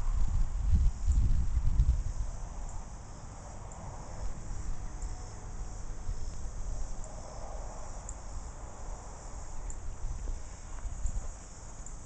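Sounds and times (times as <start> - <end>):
insects chorus: 0.0 - 12.0
faint ticks: 6.0 - 7.2, 9.4 - 12.0.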